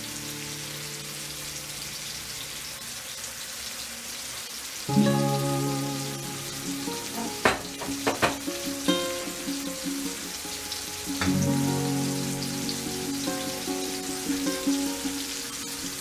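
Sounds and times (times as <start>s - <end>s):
mushrooms sizzling in frying pan: 0.0s - 16.0s
music with struck sustained notes: 4.9s - 15.9s.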